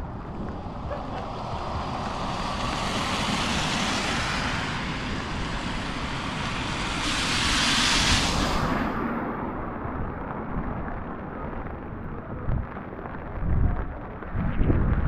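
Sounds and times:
car tyres hissing on wet road: 0.0 - 9.4.

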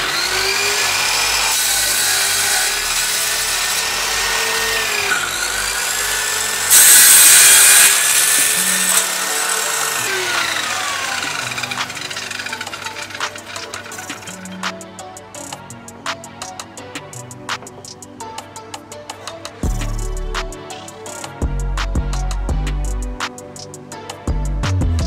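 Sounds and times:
circular saw cutting plywood: 0.0 - 14.8.

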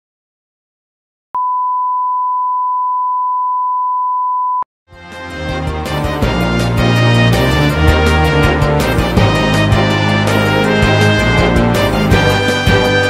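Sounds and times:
steady test-tone beep: 1.4 - 4.6.

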